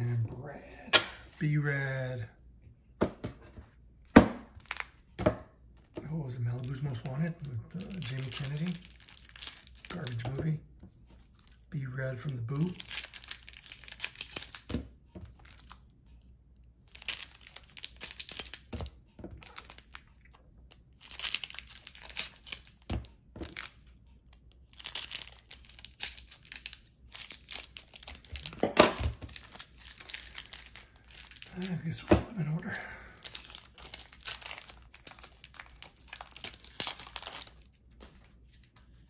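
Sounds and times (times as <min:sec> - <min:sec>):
wrappers crinkling and tearing: 0:06.1 - 0:10.5, 0:12.2 - 0:14.7, 0:16.9 - 0:18.8, 0:19.4 - 0:20.0, 0:20.9 - 0:23.8, 0:24.4 - 0:38.7.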